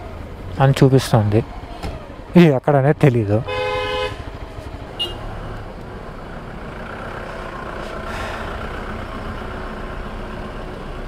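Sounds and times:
rumble of traffic: 0.0s - 11.0s
motorcycle engine idling: 3.5s - 9.9s.

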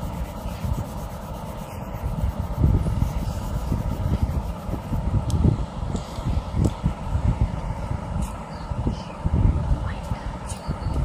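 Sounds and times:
pencil shading on paper: 0.0s - 5.0s.

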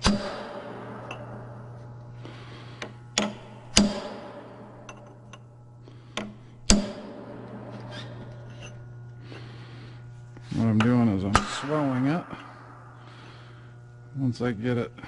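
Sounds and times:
hammer striking chisel on metal: 0.0s - 1.9s, 2.8s - 5.5s, 6.2s - 8.8s, 10.8s - 13.4s.

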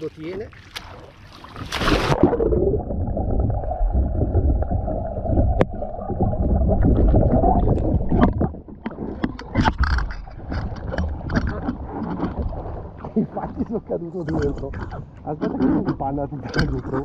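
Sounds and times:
swimmer thrashing splashes: 0.6s - 2.6s
splash of paddleboard capsizing: 0.7s - 2.3s
muffled underwater rumble and gurgle: 1.0s - 17.0s.

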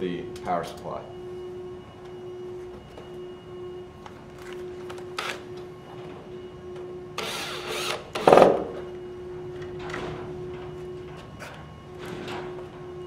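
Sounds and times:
cordless drill driving screw: 7.2s - 8.3s.

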